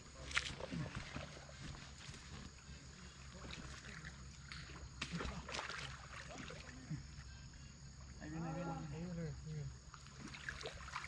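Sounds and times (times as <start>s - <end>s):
water splashing: 3.0s - 6.9s, 9.9s - 11.0s.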